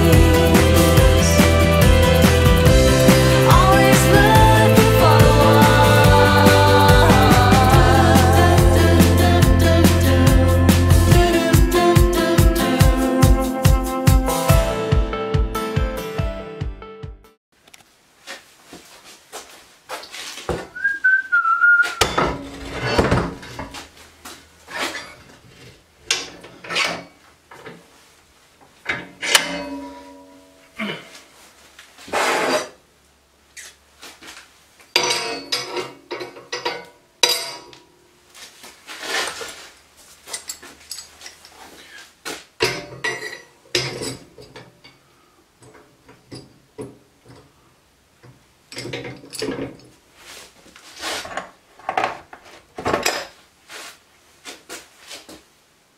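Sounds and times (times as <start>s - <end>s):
metal bars clanking and knocking: 22.0s - 23.8s, 26.0s - 27.7s, 28.8s - 30.5s, 34.9s - 37.8s, 42.6s - 44.9s, 48.7s - 49.8s
metal piece ringing: 29.2s - 30.8s.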